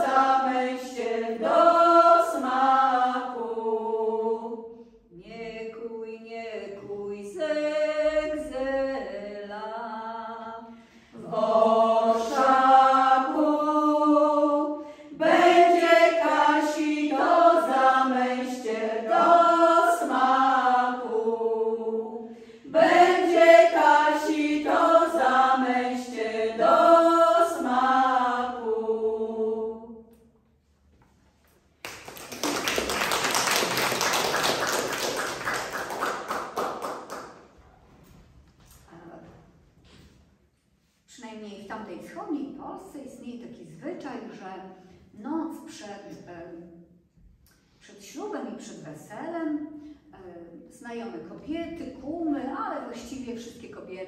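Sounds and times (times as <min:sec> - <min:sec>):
women singing a cappella: 0:00.0 - 0:30.1
audience applauding: 0:31.8 - 0:37.2.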